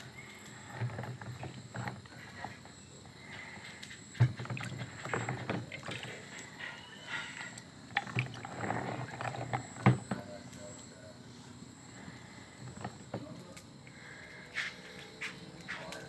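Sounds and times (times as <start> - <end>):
water sloshing and splashing: 0.5 - 10.2.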